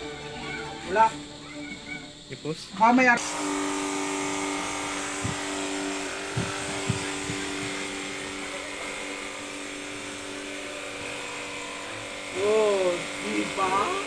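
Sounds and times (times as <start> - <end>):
water jet hissing: 0.0 - 14.0
pressure washer pump humming: 2.1 - 14.0
short low thuds: 5.2 - 5.7, 6.3 - 8.0.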